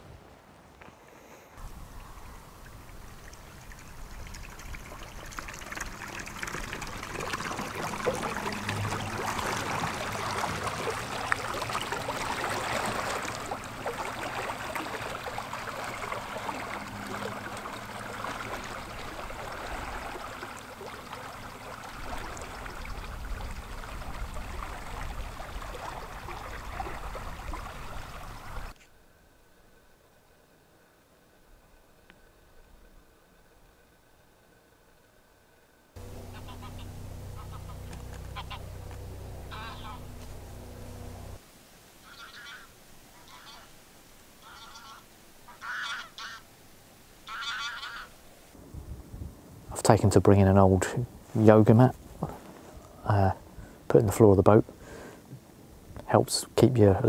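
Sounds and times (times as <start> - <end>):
water lapping against reeds: 0.3 - 28.8, 36.0 - 50.0.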